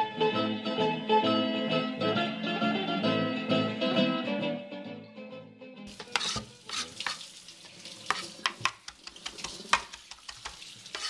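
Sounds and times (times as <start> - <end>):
acoustic guitar music: 0.0 - 6.7
knife chopping on cutting board: 5.9 - 7.2, 8.1 - 11.0.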